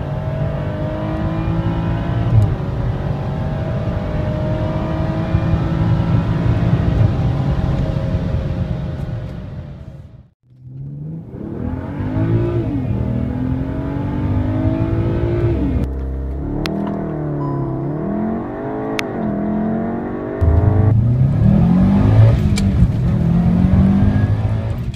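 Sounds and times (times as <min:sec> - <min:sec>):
car engine accelerating hard: 0:00.0 - 0:09.3, 0:10.6 - 0:24.9.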